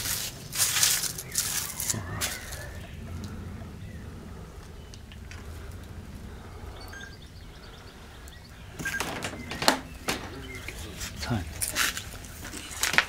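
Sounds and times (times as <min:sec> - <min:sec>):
low rumble: 0:00.0 - 0:13.0
faint bird chirps: 0:00.8 - 0:12.8
knocks: 0:08.8 - 0:10.8.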